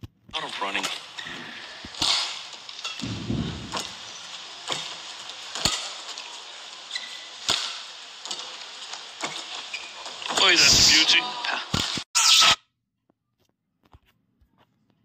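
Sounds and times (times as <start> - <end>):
racket hitting shuttlecock: 1.9 - 2.4, 6.9 - 8.4
low thud: 3.0 - 4.0.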